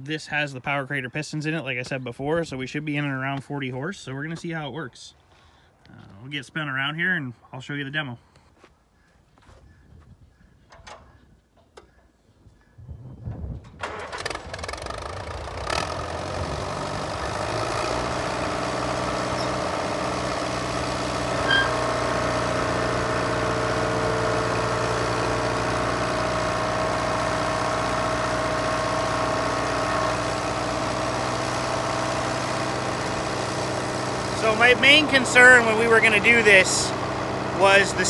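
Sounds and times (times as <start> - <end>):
tractor engine starting and running: 10.7 - 11.9, 13.4 - 38.0
hydraulic high-pitched whine: 21.3 - 22.3.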